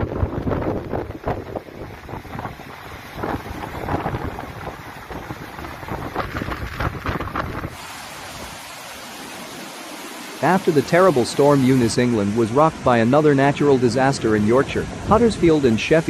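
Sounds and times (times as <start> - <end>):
gusty wind on microphone: 0.0 - 8.8
floodwater rushing through channel: 0.0 - 16.0.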